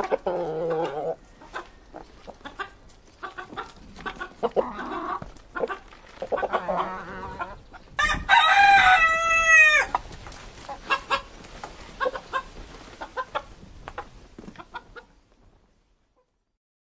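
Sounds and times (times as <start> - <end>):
chickens clucking softly: 0.0 - 8.0, 9.8 - 15.2
rooster crowing: 8.0 - 10.0.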